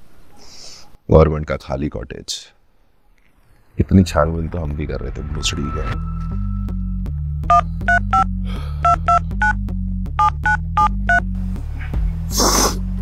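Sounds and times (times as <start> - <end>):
rush of noise: 3.4 - 6.9
low rhythmic music: 3.8 - 13.0
phone keypad dialing beeps: 7.5 - 9.6, 10.2 - 11.2.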